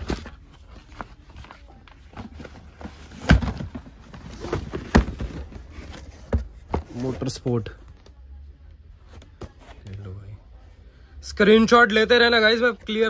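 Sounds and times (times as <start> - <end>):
cardboard and tissue paper rustling: 0.0 - 7.5.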